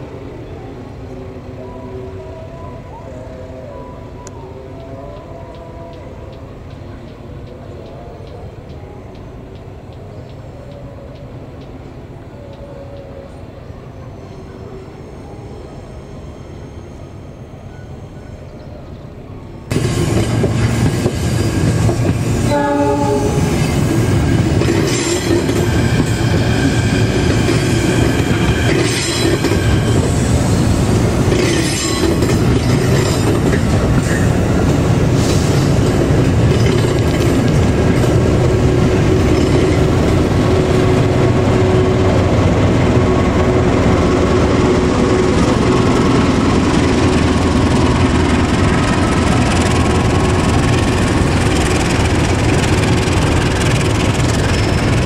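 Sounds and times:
train engine and wheels rumbling: 0:00.0 - 0:55.0
train horn blast: 0:22.4 - 0:24.2.

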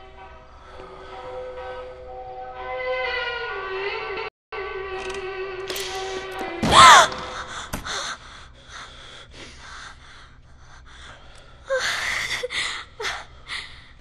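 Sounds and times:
heavy breathing: 0:07.2 - 0:14.0
woman gasping: 0:07.2 - 0:14.0.

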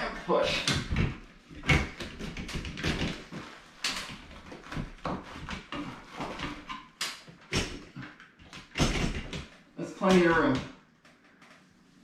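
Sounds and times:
hose rustling and scraping metal: 0:00.4 - 0:07.0.

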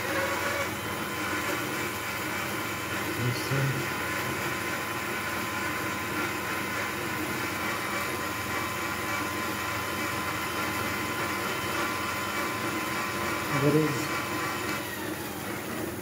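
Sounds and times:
electric bike motor whirring: 0:00.0 - 0:16.0.

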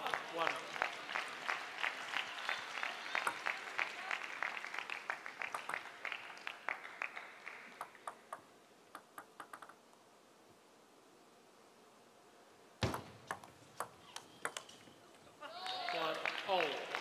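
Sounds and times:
crowd clapping in rhythm: 0:00.0 - 0:08.3, 0:15.6 - 0:17.0.

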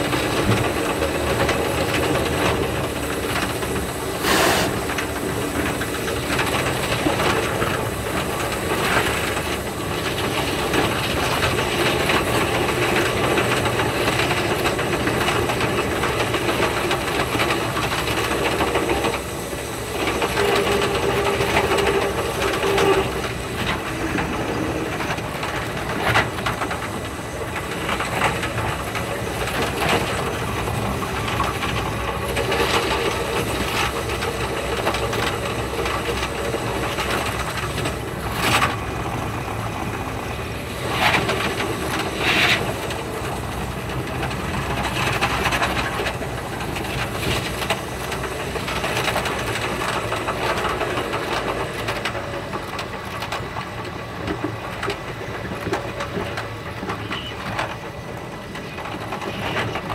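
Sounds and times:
train running noise sped up: 0:00.0 - 0:59.9.

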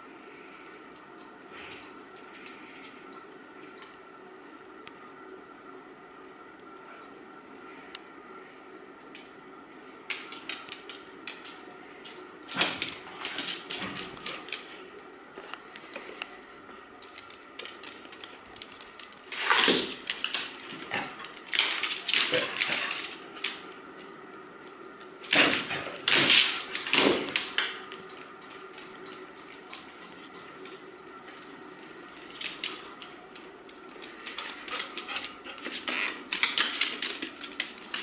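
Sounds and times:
dogs scuffling: 0:10.1 - 0:24.1, 0:25.3 - 0:38.0.

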